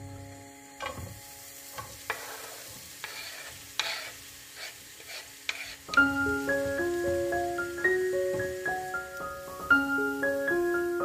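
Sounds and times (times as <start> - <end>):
onion sizzling in hot oil: 0.5 - 11.0
scraping on wooden chopping board: 2.1 - 6.0.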